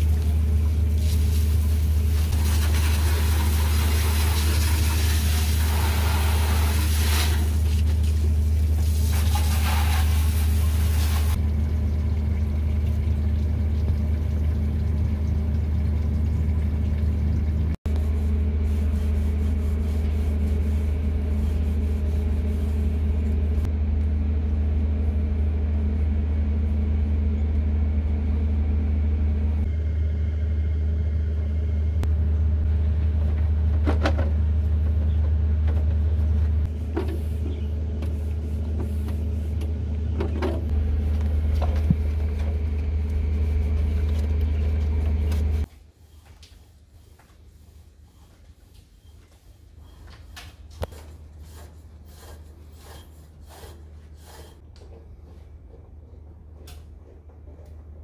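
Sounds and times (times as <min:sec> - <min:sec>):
hose water spraying on plastic: 0:00.0 - 0:11.4
low machine hum: 0:00.0 - 0:58.0.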